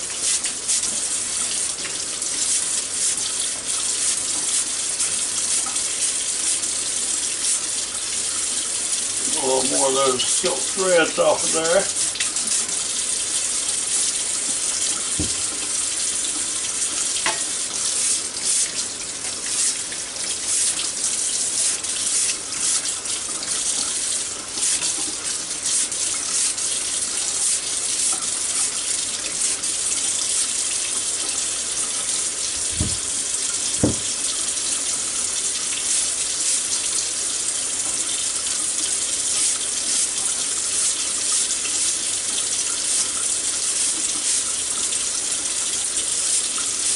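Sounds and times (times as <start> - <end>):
faucet running into sink: 0.0 - 46.9
brush scrubbing corn: 9.3 - 12.2, 23.9 - 28.8, 39.3 - 40.2
brief knocks: 33.8 - 34.1.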